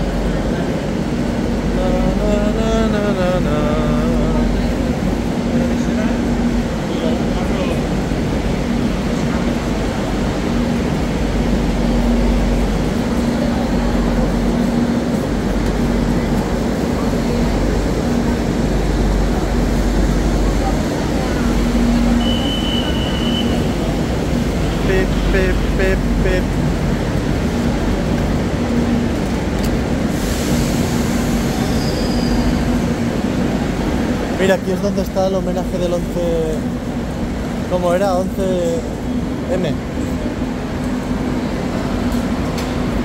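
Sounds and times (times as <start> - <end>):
station noise: 0.0 - 43.0
train equipment low rumble: 0.0 - 43.0
train hiss: 30.0 - 33.0.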